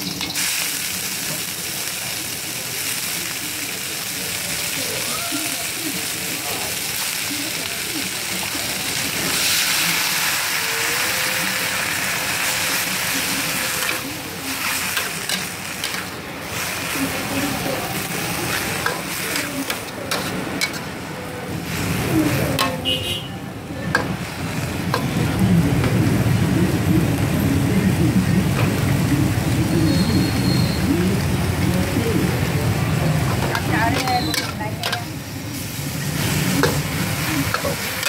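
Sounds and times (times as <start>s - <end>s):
noodles sizzling in a wok: 0.0s - 27.2s, 27.9s - 38.0s
metal spatula scraping a wok: 21.7s - 22.9s, 33.4s - 38.0s.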